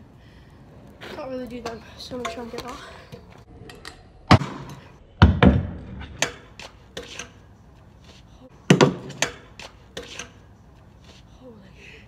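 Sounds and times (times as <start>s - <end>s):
scooter landing with heavy thuds: 4.3s - 6.4s.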